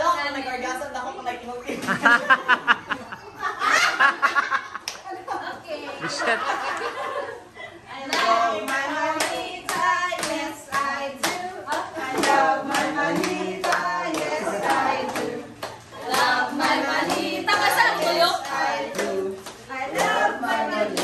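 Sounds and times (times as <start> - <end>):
people clapping in rhythm: 4.8 - 5.1, 8.1 - 21.0
voices singing together: 6.9 - 21.0.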